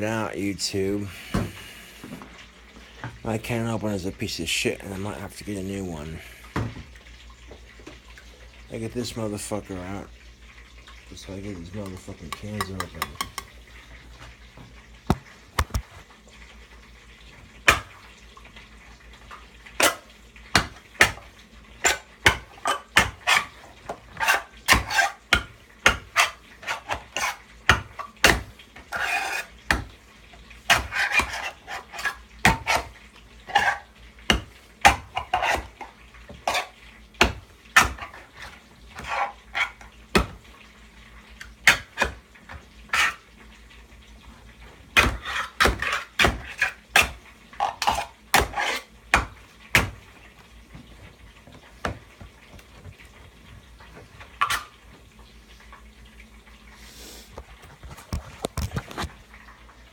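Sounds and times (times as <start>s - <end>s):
knife knocking on tin can: 11.8s - 13.5s
knife scraping tin can: 21.8s - 25.2s, 26.1s - 27.4s, 28.9s - 29.6s, 30.7s - 32.9s, 33.5s - 33.9s, 35.1s - 35.8s, 45.0s - 48.9s.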